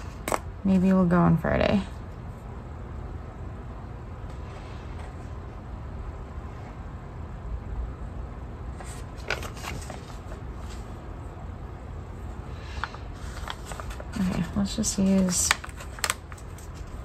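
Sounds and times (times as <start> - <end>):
paper sheets rustling: 8.8 - 11.0, 12.7 - 17.0.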